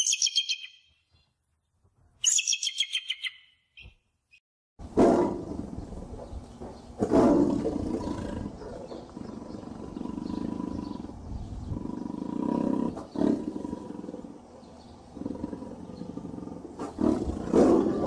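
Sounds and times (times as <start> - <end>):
tiger roaring: 7.0 - 18.0.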